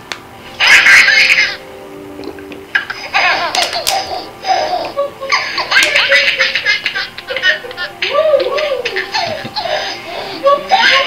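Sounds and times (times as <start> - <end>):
baby laughing: 0.6 - 1.6, 2.7 - 11.0.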